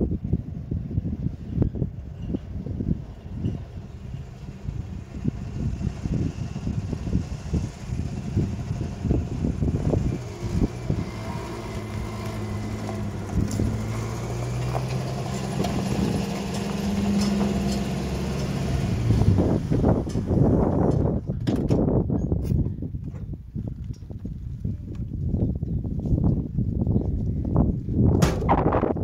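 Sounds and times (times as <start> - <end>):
truck engine running: 1.1 - 21.4.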